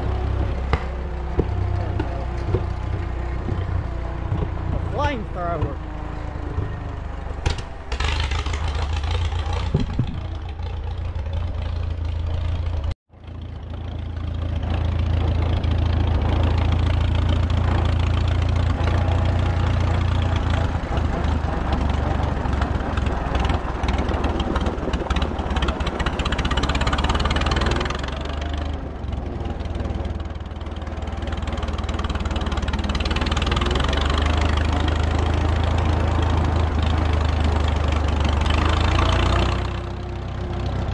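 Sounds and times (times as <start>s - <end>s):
tractor engine running: 0.0s - 40.9s.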